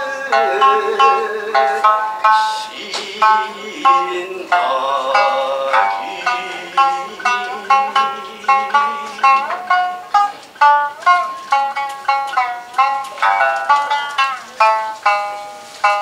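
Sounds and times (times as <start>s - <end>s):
person singing long notes: 0.0s - 16.0s
shamisen plucked: 0.0s - 16.0s.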